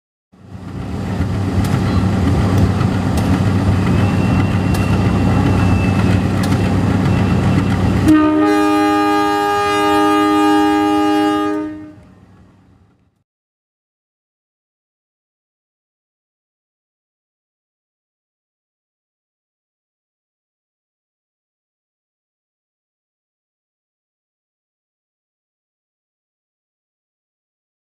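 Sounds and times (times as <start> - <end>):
locomotive engine drone: 0.4 - 13.2
locomotive horn blast: 7.9 - 12.1.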